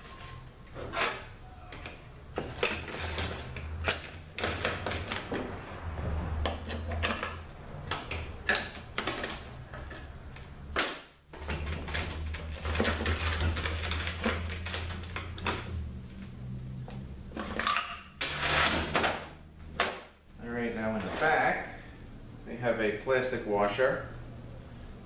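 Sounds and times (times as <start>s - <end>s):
metal parts clinking and clattering: 11.4s - 15.7s.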